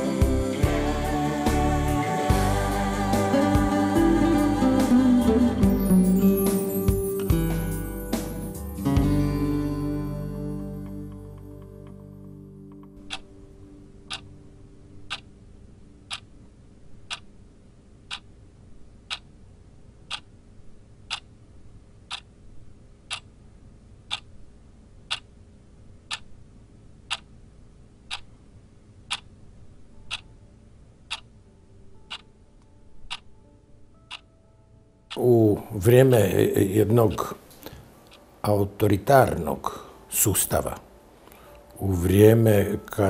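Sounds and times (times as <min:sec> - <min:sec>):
faint steady hum: 0:00.0 - 0:43.0
clock ticking: 0:12.8 - 0:13.3, 0:14.1 - 0:14.3, 0:15.0 - 0:15.3, 0:16.0 - 0:16.3, 0:17.0 - 0:17.4, 0:18.0 - 0:18.3, 0:19.0 - 0:19.4, 0:20.1 - 0:20.4, 0:21.0 - 0:21.3, 0:22.1 - 0:22.3, 0:23.1 - 0:23.3, 0:24.1 - 0:24.3, 0:25.1 - 0:25.3, 0:26.1 - 0:26.3, 0:27.1 - 0:27.3, 0:28.1 - 0:28.3, 0:29.1 - 0:29.3, 0:30.0 - 0:30.3, 0:31.1 - 0:31.4, 0:32.0 - 0:32.3, 0:33.1 - 0:33.3, 0:34.0 - 0:34.4, 0:35.1 - 0:35.3.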